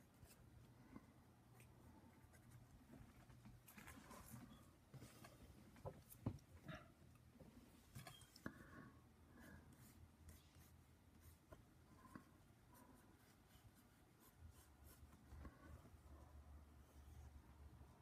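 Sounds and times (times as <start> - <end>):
pencil scratching on paper: 9.7 - 16.0.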